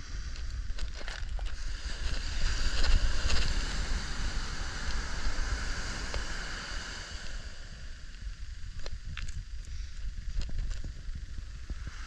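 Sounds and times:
wind rumbling on microphone: 0.0s - 12.0s
wave breaking and washing up: 1.4s - 8.9s.

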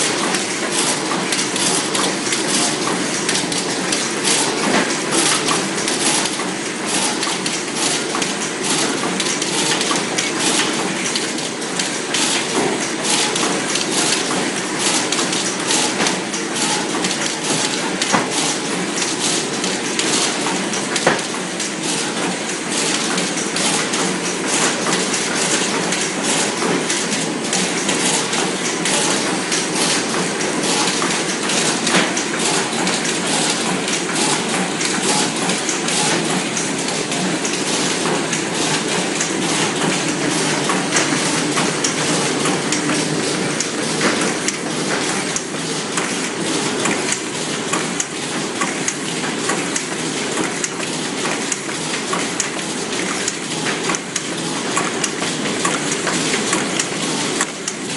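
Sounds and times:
packaging machine clattering: 0.0s - 57.9s.

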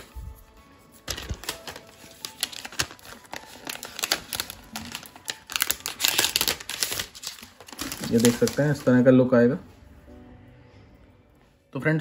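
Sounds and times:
plastic wrap crinkling: 1.0s - 9.1s.

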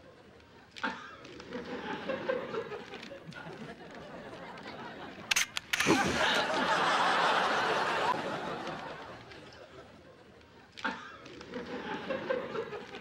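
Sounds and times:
studio audience laughing: 0.8s - 13.0s
camera shutter click: 5.3s - 6.5s.

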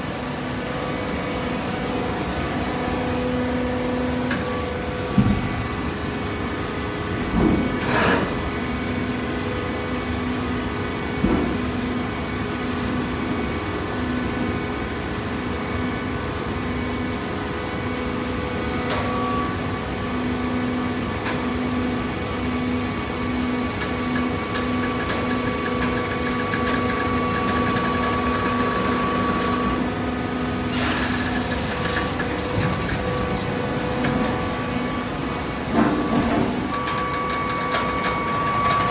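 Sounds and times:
baler machinery humming: 16.8s - 38.9s.

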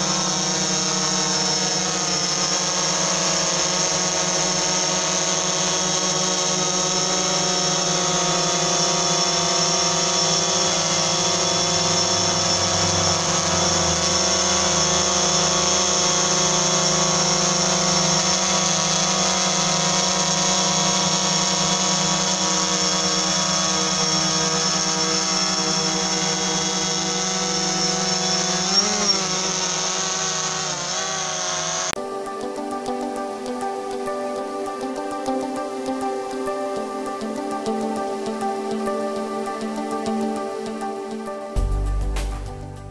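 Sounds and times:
drone bumps: 0.0s - 32.0s, 41.6s - 42.9s
drone propellers whining: 0.0s - 41.6s.

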